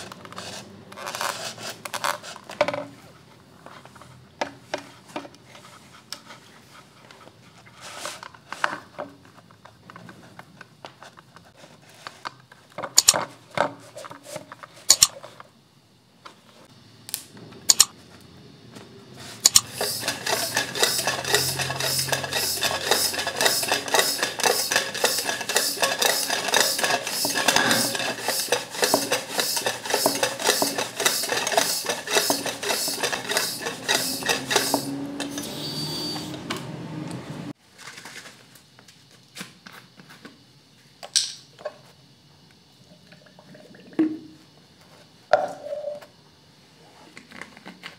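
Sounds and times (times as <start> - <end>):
fittings clicking and knocking: 14.9 - 15.1, 17.7 - 17.9, 19.4 - 35.5
spray gun pulsing hiss: 19.6 - 35.0.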